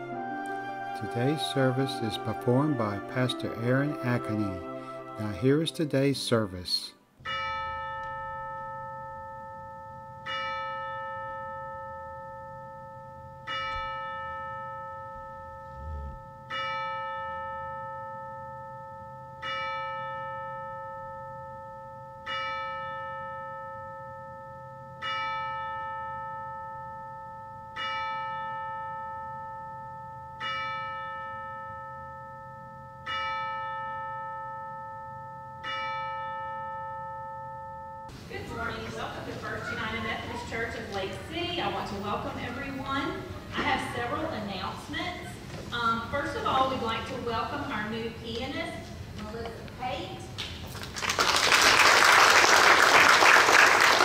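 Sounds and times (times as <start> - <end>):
church bell tolling: 0.9 - 6.0, 7.2 - 45.2.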